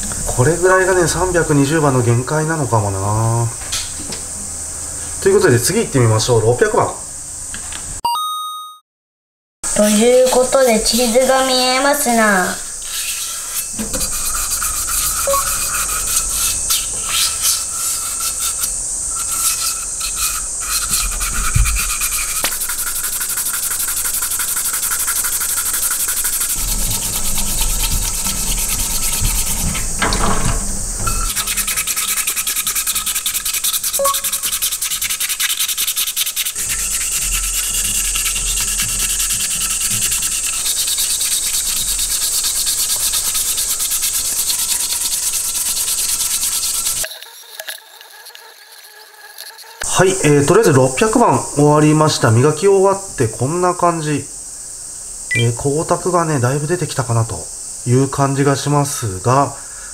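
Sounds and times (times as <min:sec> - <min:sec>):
sandpaper scratching on metal: 0:09.7 - 0:30.0, 0:31.2 - 0:49.9.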